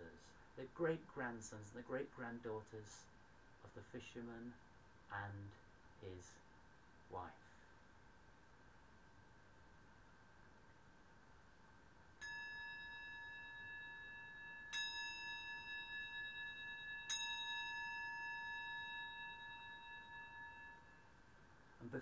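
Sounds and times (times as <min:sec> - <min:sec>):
singing bowl struck: 0:12.2 - 0:21.3.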